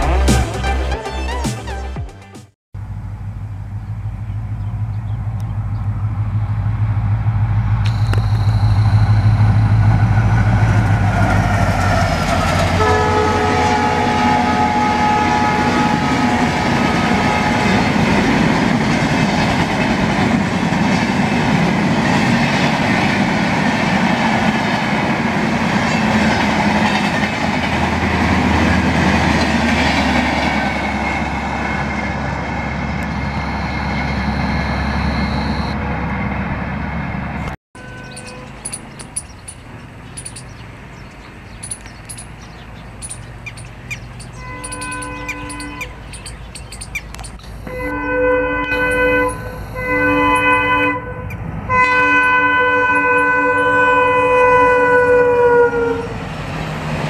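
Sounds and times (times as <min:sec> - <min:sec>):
train passing at speed: 0:02.8 - 0:57.0
train horn chord: 0:11.2 - 0:18.5, 0:37.8 - 0:38.7, 0:44.4 - 0:46.0, 0:47.6 - 0:56.2.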